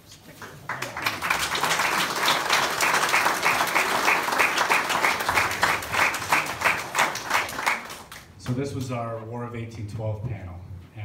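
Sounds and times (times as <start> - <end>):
audience applauding: 0.4 - 8.4.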